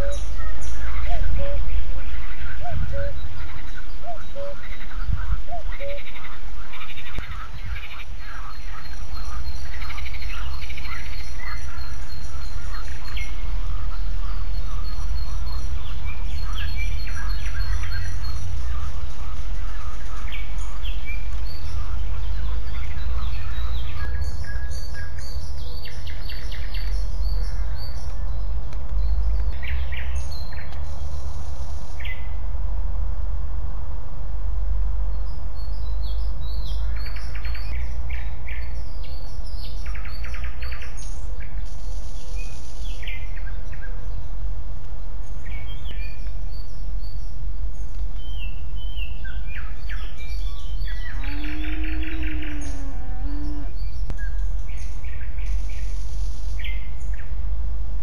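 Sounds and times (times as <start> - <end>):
small birds chirping and singing: 0.0 - 32.6, 35.0 - 58.0
steady low rumble: 0.0 - 58.0.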